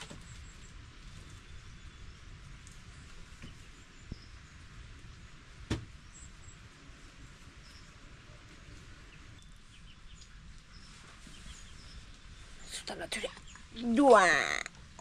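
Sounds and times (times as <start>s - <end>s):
sharp knock: 5.7s - 5.9s
faint bird chirps: 7.6s - 13.9s.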